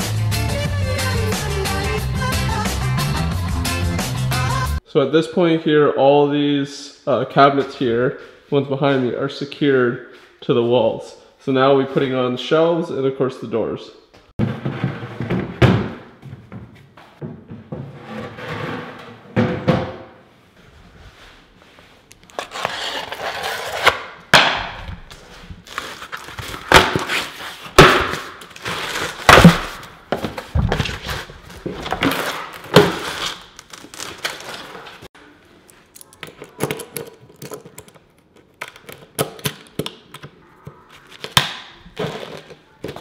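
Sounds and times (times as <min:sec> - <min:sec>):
cardboard tearing and scraping: 0:22.3 - 0:24.1, 0:25.0 - 0:35.1.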